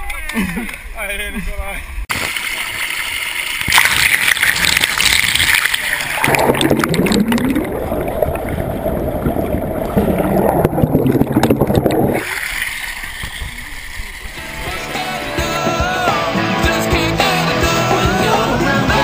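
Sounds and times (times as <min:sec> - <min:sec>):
water pouring and gurgling: 0:02.1 - 0:14.6.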